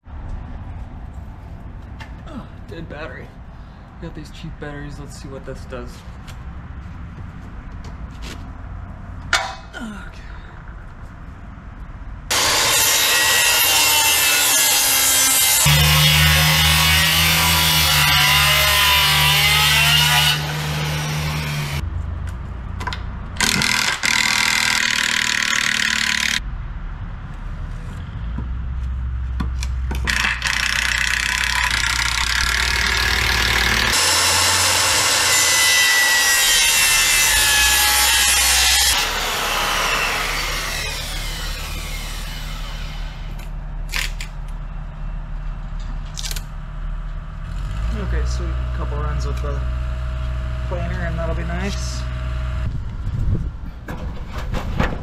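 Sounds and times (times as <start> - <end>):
circular saw cutting wood: 12.3 - 21.8, 23.4 - 26.4, 30.1 - 43.5.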